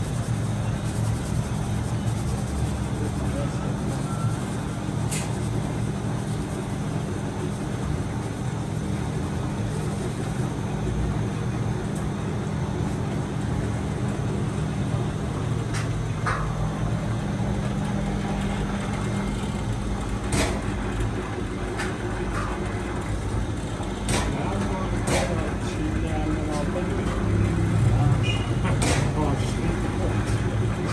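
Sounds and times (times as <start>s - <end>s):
low hum of machinery: 0.0s - 30.9s.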